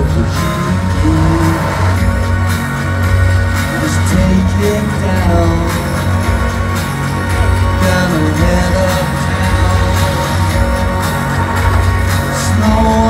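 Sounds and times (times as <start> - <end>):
man singing into a microphone: 0.0 - 2.2, 3.7 - 6.3, 7.8 - 10.7, 12.3 - 13.0
electronic music over a pa: 0.0 - 13.0.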